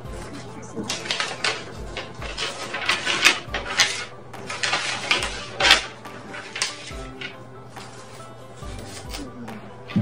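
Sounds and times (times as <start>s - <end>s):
paper rustling and crinkling: 0.0s - 9.5s.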